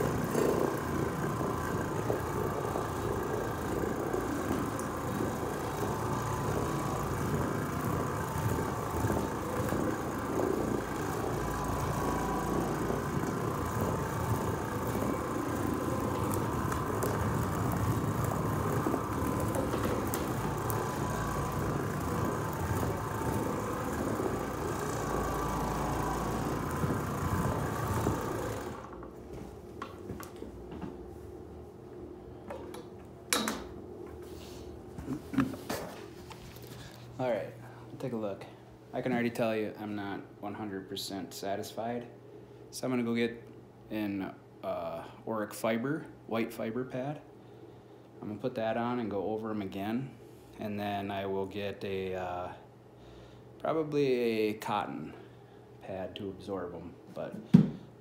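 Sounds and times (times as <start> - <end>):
floor machine running: 0.0 - 31.2, 34.2 - 41.2.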